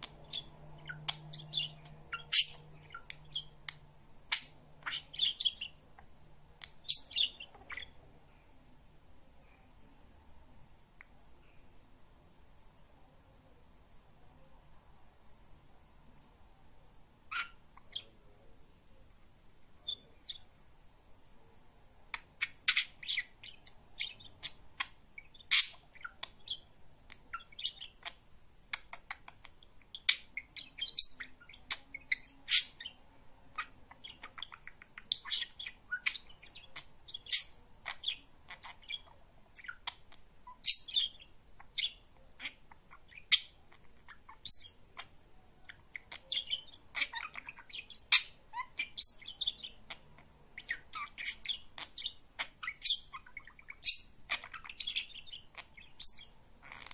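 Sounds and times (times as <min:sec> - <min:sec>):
budgerigar chattering: 0:00.0 - 0:05.8, 0:06.8 - 0:08.0, 0:33.6 - 0:56.9.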